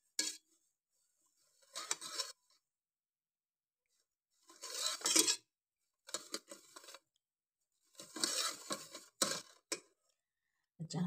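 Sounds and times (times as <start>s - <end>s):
metal spoon stirring in a bowl: 0.0s - 0.5s, 1.5s - 2.4s, 4.4s - 5.5s, 6.1s - 7.0s, 7.8s - 9.9s.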